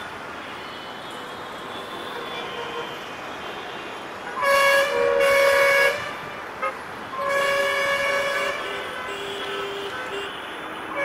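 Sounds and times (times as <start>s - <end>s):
locomotive horn blasts: 4.3s - 11.0s.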